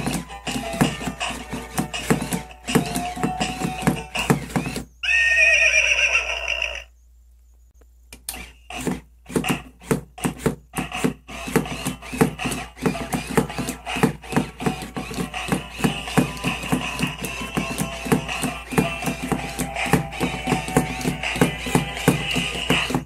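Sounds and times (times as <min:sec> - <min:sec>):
toy horse whinny: 0:04.3 - 0:07.0.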